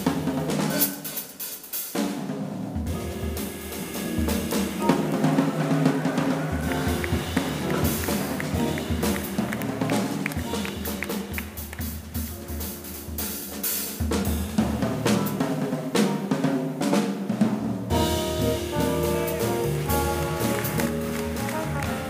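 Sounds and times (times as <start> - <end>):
jazz drum kit: 0.0 - 22.0
trombone and band held notes: 3.0 - 11.6, 17.9 - 22.0.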